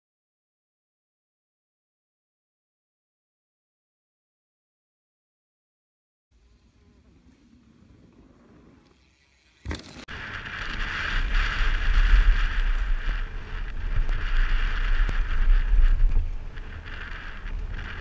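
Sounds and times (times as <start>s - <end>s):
wind buffeting microphone: 10.1s - 18.0s.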